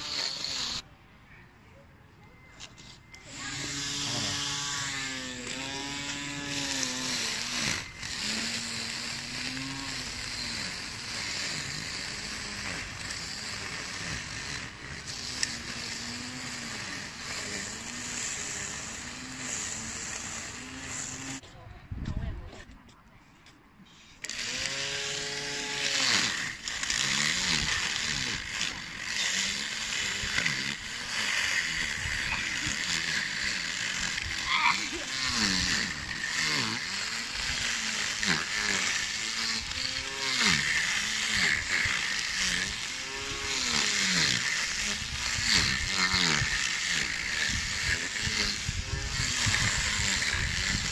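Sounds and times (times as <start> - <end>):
string trimmer cutting grass: 0.0 - 0.8, 2.5 - 21.5, 24.2 - 50.9.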